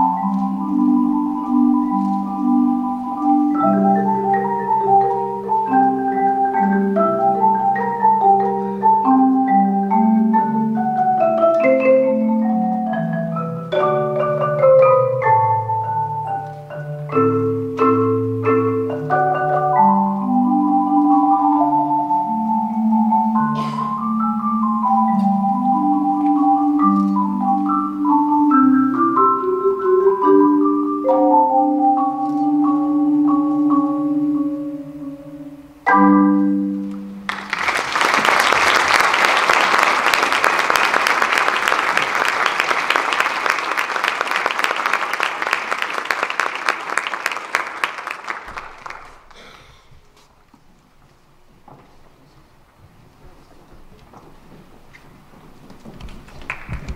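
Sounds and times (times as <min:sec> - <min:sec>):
mallet percussion ringing notes: 0:00.0 - 0:37.3
audience applause: 0:37.3 - 0:49.9, 0:56.2 - 0:56.9.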